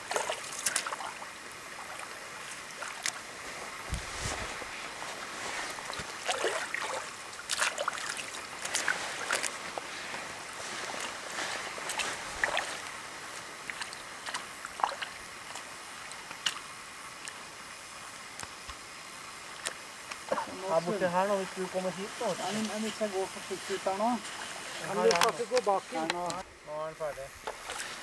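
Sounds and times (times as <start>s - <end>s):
lake water lapping and splashing: 0.0s - 18.2s, 27.4s - 28.0s
steady hiss: 0.0s - 28.0s.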